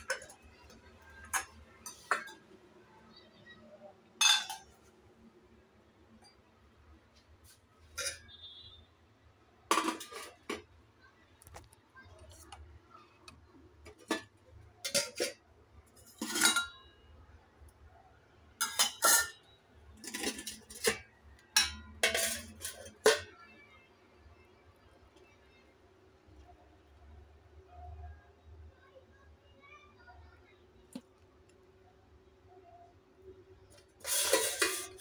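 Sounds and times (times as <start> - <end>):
steel plates clinking: 16.0 - 16.9, 18.6 - 19.4, 20.0 - 23.3, 34.0 - 35.0.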